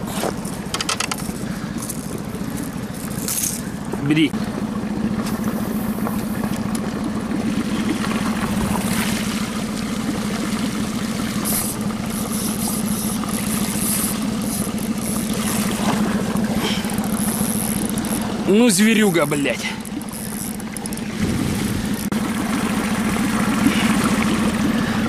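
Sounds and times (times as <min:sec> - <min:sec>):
outboard motor running: 0:00.0 - 0:25.0.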